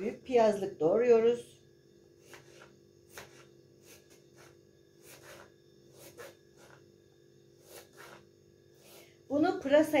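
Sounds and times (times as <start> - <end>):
knife slicing onion on board: 2.2 - 6.8.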